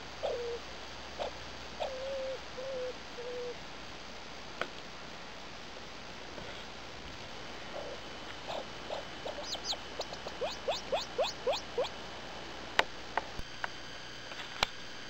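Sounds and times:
grouse calling: 0.2 - 0.6, 1.2 - 3.6, 7.6 - 12.0.

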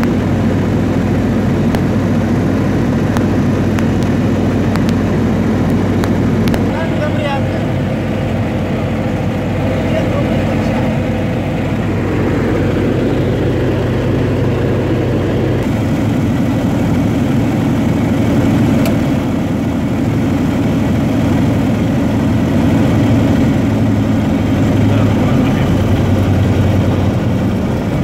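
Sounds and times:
aircraft engine and propeller: 0.0 - 28.0.

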